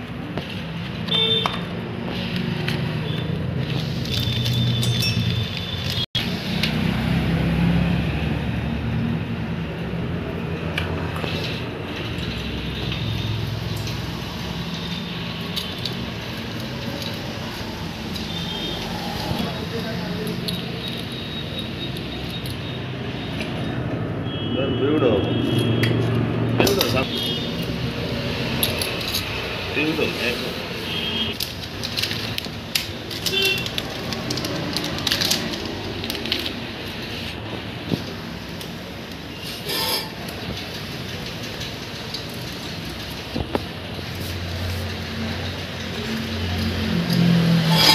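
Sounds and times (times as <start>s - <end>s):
hand tools clicking and clinking: 2.3s - 6.0s, 28.4s - 29.4s, 44.9s - 47.9s
metal chain clicking and clinking: 4.1s - 6.0s
short metallic rings: 47.6s - 47.9s.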